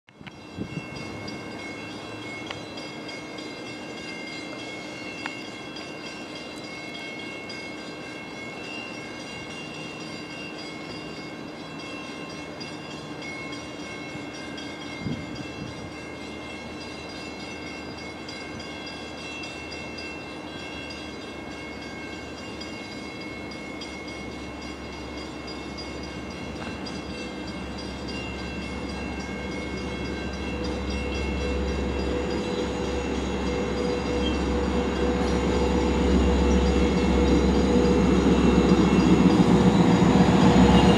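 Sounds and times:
diesel locomotive rumbling: 0:00.2 - 0:40.9
high-pitched whine: 0:24.6 - 0:40.9.

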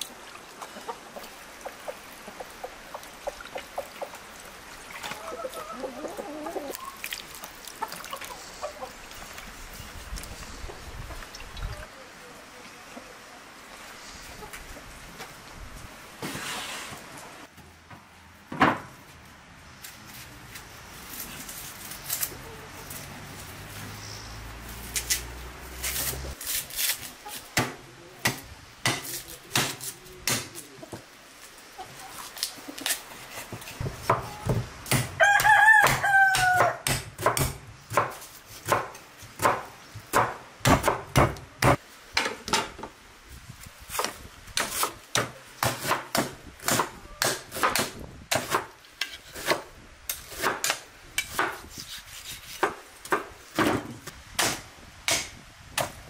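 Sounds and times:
rooster crowing: 0:35.2 - 0:36.8.

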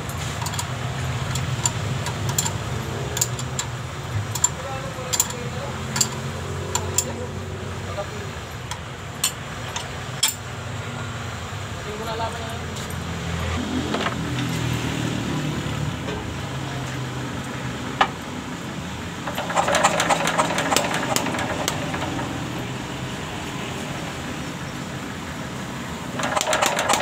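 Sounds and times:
diesel engine running: 0:00.0 - 0:27.0
engine crackling knock: 0:19.3 - 0:22.7.

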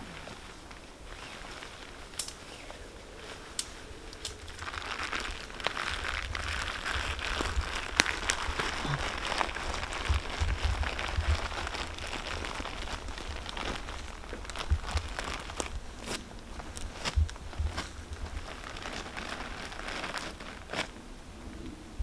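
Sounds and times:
plastic tarpaulin crinkling: 0:00.0 - 0:21.0.

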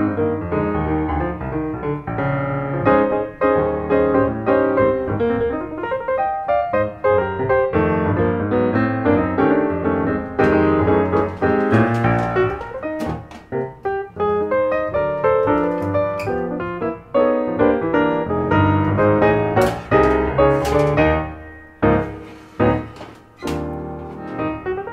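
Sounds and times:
piano music: 0:00.0 - 0:24.9.

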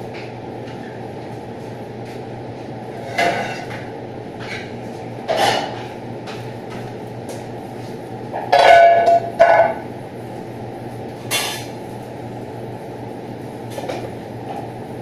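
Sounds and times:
extraction hood fan drone: 0:00.0 - 0:15.0
metal pots clattering: 0:08.4 - 0:09.8.

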